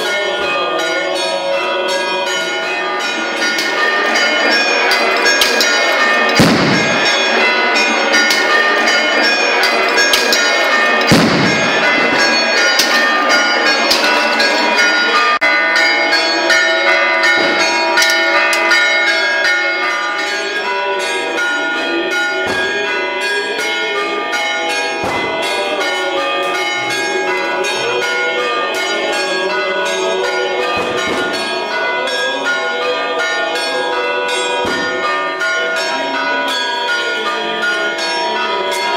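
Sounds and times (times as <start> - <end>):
church bells pealing: 0.0 - 38.9
heavy thumps: 6.4 - 7.2, 11.1 - 12.4.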